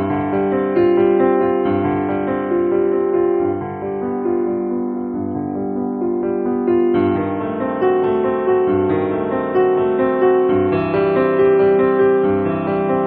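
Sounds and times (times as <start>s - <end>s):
gentle piano melody: 0.0s - 13.0s.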